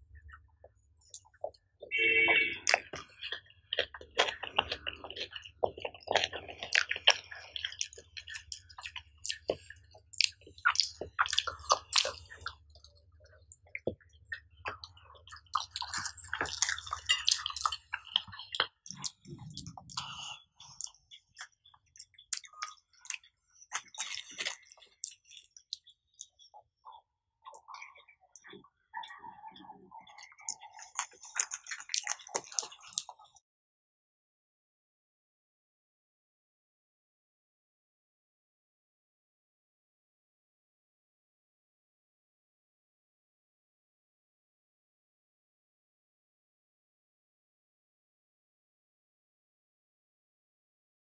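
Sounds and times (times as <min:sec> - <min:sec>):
wet chewing mouth clicks: 0:00.1 - 0:33.4.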